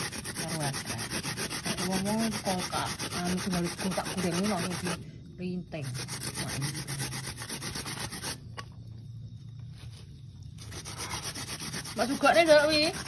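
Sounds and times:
coconut rasping on metal grater: 0.0s - 5.0s, 5.8s - 8.4s, 10.6s - 13.0s.

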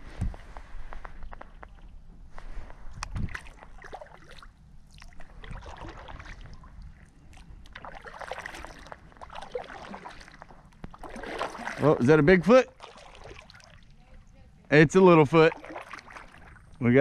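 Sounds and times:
paddle strokes in water: 0.0s - 14.0s, 15.4s - 16.6s
water splashing and dripping: 3.1s - 14.0s, 15.4s - 17.0s.

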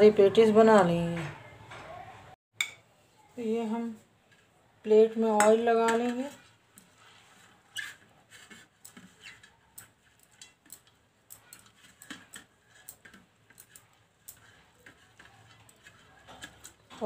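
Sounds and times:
metal spoon scraping steel plate: 5.0s - 17.0s.

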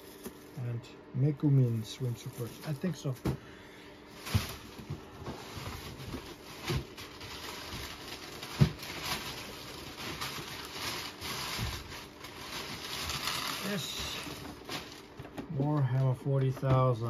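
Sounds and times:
packaging rustling: 1.6s - 3.2s, 4.1s - 15.7s.

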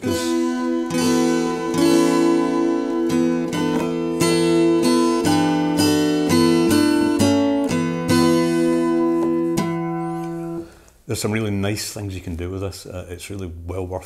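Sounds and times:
acoustic guitar chords strummed: 0.0s - 10.6s.

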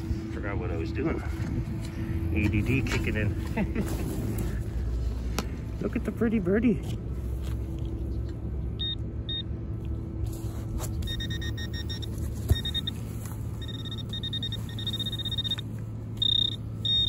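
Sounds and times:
low steady rumble: 0.0s - 17.0s
metal detector probe beeping: 8.8s - 9.5s, 11.0s - 17.0s.

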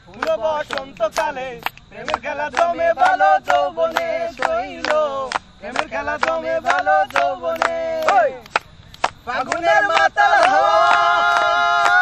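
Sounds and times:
voices singing: 0.0s - 12.0s.

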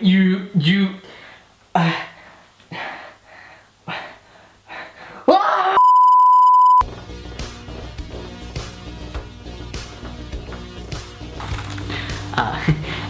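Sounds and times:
man crying out: 5.3s - 5.8s
electronic beep: 5.8s - 6.8s
background music: 6.8s - 13.0s.

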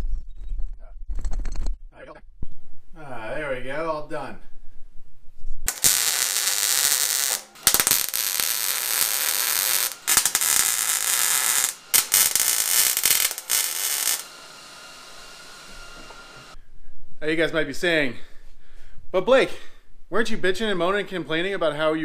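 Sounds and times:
welder crackling: 5.6s - 16.6s.

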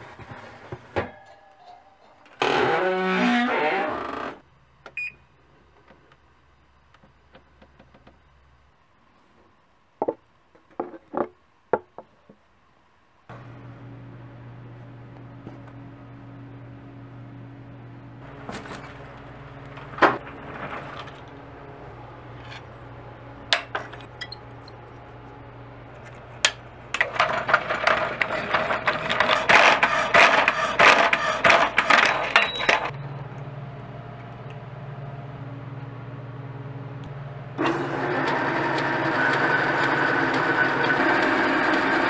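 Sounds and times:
metal lathe running: 26.9s - 33.3s, 37.6s - 42.0s
lathe tool facing metal rod: 27.0s - 32.9s
saw blade rasping through steel: 29.1s - 32.2s
power hacksaw motor hum: 37.6s - 42.0s.

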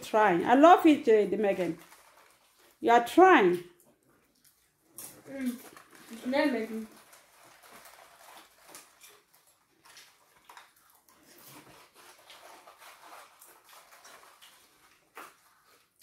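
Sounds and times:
children eating popcorn: 0.0s - 16.0s.

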